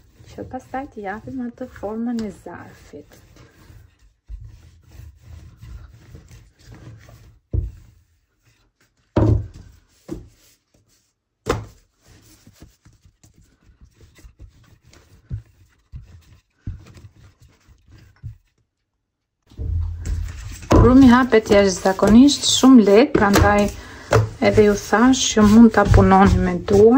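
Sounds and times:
rolling pin rolling dough: 0.0s - 10.5s, 11.6s - 18.8s, 19.6s - 26.9s
thunks on work surface: 9.2s - 9.6s.

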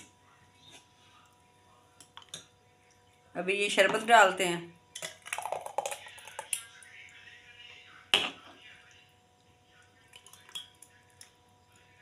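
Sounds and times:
liquid pouring over ice: 5.0s - 6.8s.

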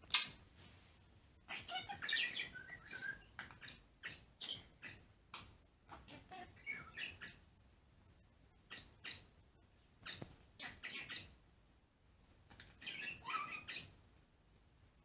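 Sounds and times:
budgerigar warbling and chirping: 1.5s - 5.0s, 5.9s - 7.4s, 8.6s - 9.3s, 10.0s - 11.3s, 12.8s - 13.9s.

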